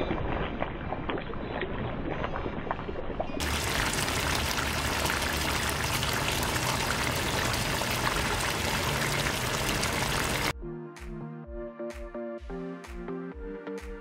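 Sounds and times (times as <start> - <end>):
sauce bubbling in a pot: 2.8 - 10.5.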